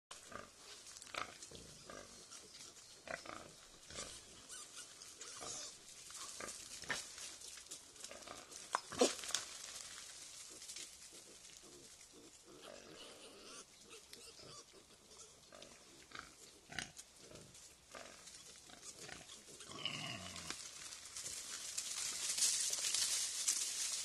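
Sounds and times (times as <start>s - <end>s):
boar and piglets calling: 1.2s - 9.8s, 10.4s - 20.6s.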